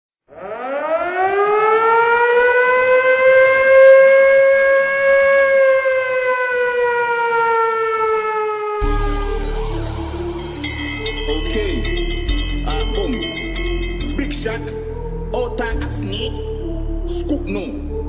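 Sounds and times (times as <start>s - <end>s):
siren wail: 0.3s - 12.2s.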